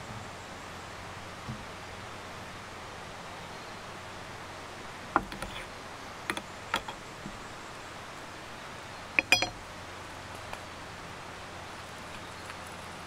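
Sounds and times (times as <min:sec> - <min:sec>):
steady background hiss: 0:00.0 - 0:13.0
cookware clicks and clatters: 0:06.3 - 0:07.0, 0:09.2 - 0:09.6
metal clinks: 0:09.2 - 0:09.6.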